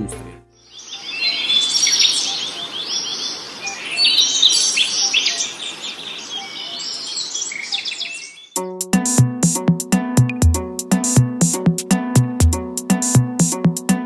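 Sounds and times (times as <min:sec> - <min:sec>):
small birds chirping: 0:00.5 - 0:08.8.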